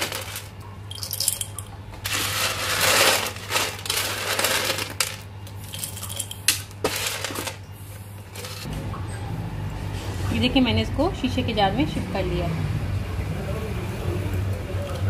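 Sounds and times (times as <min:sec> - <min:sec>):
peanuts dropping into glass jar: 0:00.0 - 0:07.6
peanuts rattling on metal tray: 0:00.0 - 0:07.6.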